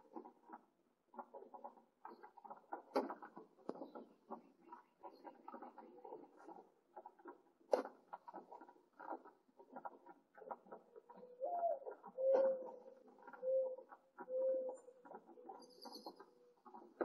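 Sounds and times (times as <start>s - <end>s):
dove cooing: 11.1s - 15.7s.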